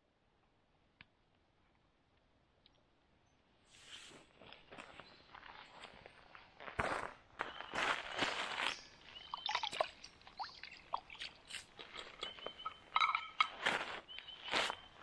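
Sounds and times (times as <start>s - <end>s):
footsteps crunching on gravel: 4.1s - 10.1s, 11.5s - 15.0s
water splashing into creek: 9.2s - 13.8s
short bird calls: 10.5s - 15.0s.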